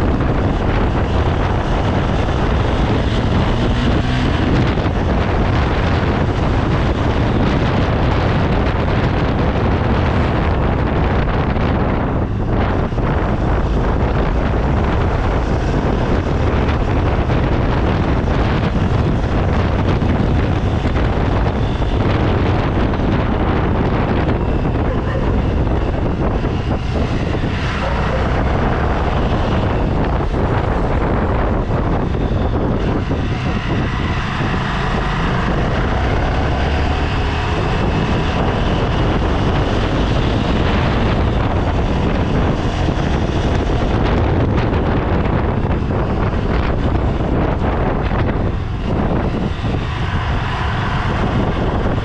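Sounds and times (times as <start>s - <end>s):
vehicle running noise: 0.0s - 52.0s
wind buffeting microphone: 0.0s - 52.0s.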